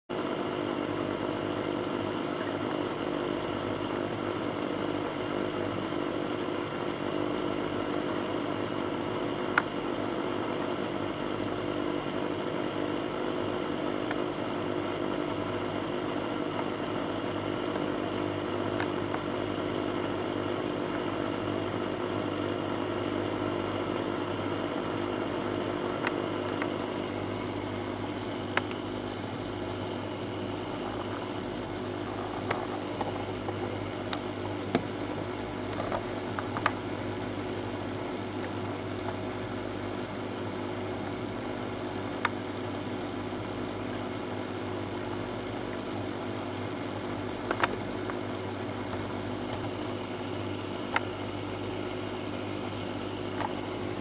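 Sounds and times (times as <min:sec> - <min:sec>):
aquarium equipment humming: 0:00.1 - 0:54.0.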